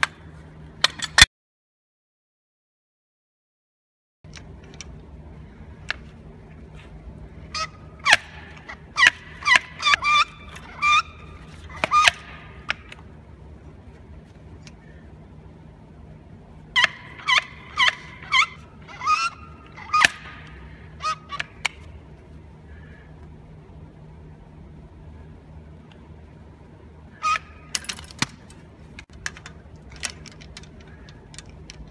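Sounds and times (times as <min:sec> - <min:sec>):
metal squeaking under load: 0:07.5 - 0:12.9, 0:16.8 - 0:21.6
swaging tool clicks: 0:27.7 - 0:31.9.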